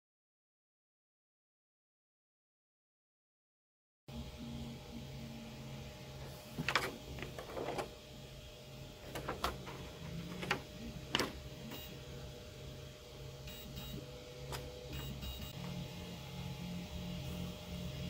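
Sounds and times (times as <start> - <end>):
faint steady hum: 4.1 - 18.0.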